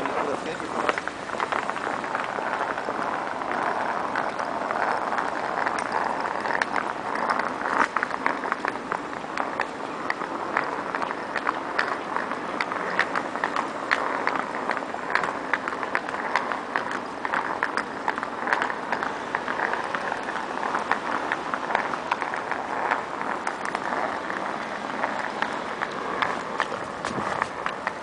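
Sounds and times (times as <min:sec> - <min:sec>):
city hum: 0:00.0 - 0:28.0
footsteps on wet paving: 0:00.0 - 0:28.0.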